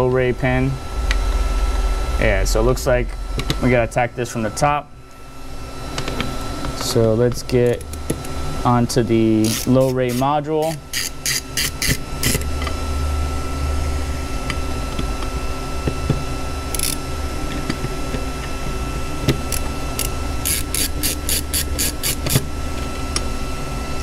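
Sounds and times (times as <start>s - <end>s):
steady low hum: 0.0s - 24.0s
screwdriver clicking: 19.5s - 22.4s.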